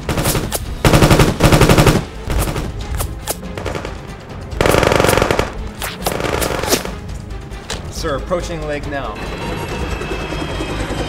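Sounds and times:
automatic gunfire bursts: 0.1s - 2.6s, 4.6s - 6.6s.

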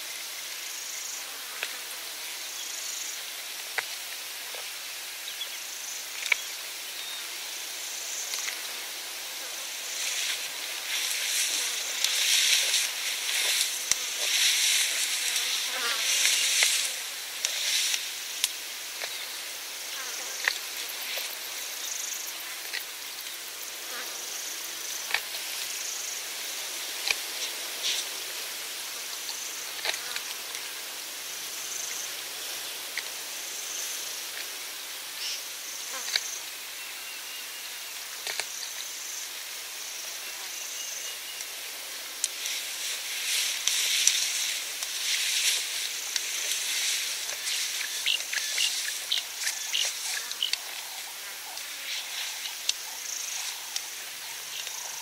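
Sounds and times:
crickets chirping: 0.0s - 55.0s
rustling foliage: 0.0s - 55.0s
flies buzzing: 7.5s - 36.5s, 40.1s - 55.0s.

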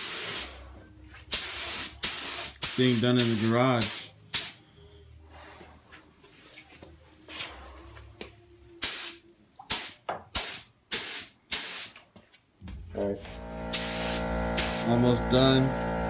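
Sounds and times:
paint spray gun hissing: 0.0s - 0.5s, 13.3s - 15.0s.

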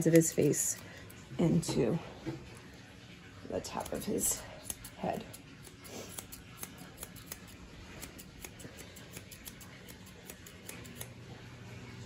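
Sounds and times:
grooming shears snipping: 0.0s - 0.8s, 3.8s - 11.2s.

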